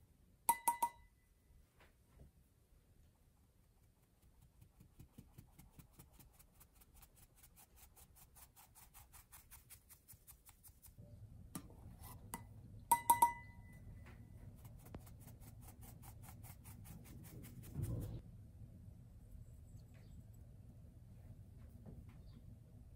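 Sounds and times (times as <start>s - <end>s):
sieve tapped by hand: 0.5s - 1.0s, 12.3s - 13.6s
flour being sifted: 3.5s - 11.0s, 14.4s - 18.2s
ringing metallic clinks: 12.9s - 13.8s.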